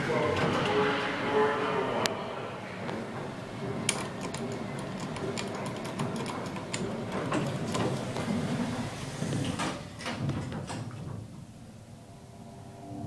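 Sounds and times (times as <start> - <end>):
elevator buttons clicking: 3.9 - 8.0.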